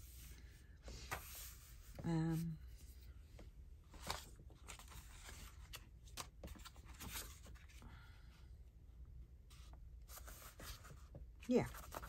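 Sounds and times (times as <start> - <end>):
paper rustling: 3.9 - 7.8.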